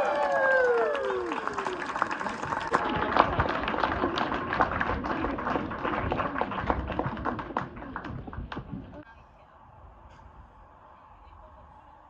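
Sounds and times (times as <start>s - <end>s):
audience applause: 0.0s - 9.0s.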